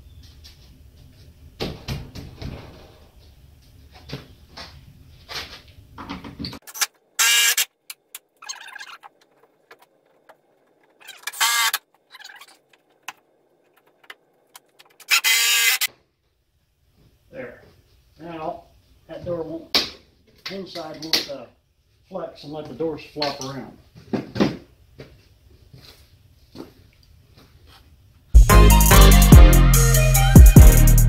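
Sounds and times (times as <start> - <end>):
cordless drill whining: 7.2 - 7.7, 11.1 - 11.8, 15.0 - 15.9.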